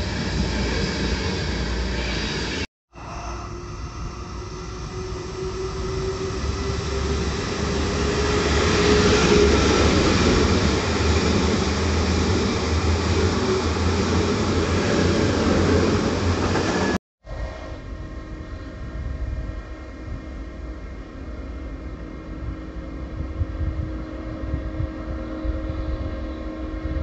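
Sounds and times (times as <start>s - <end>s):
train rolling past: 0.0s - 27.0s.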